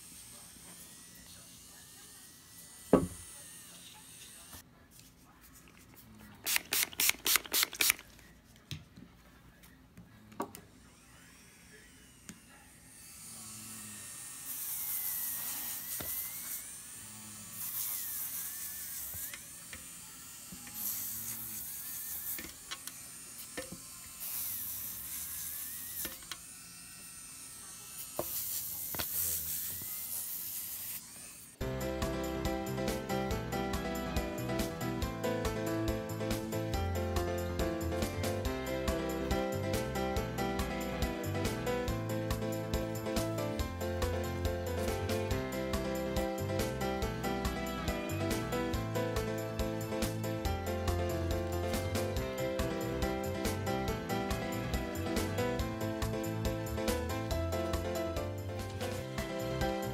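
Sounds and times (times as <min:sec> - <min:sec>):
electric nail drill whining: 0:00.0 - 0:04.6, 0:10.8 - 0:57.9
drill bit rubbing on nail: 0:06.5 - 0:08.1, 0:13.3 - 0:31.6.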